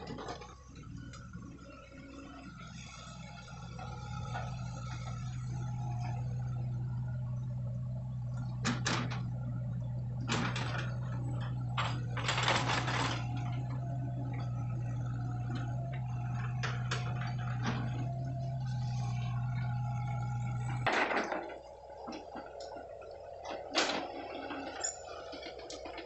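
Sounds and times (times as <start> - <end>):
excavator diesel engine running: 0.0 - 26.0
metallic clanks and rattles: 20.7 - 22.8.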